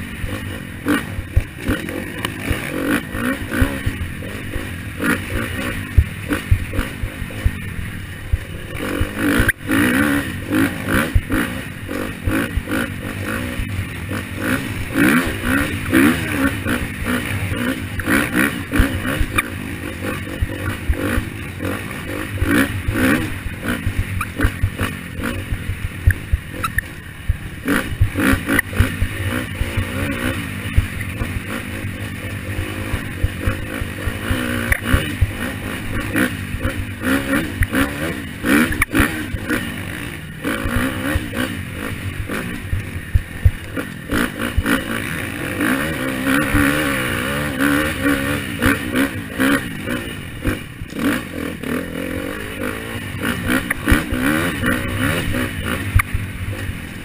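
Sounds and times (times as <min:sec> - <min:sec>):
bike rattling and knocking: 0:00.0 - 0:45.0
motorbike engine revving: 0:00.0 - 0:57.0.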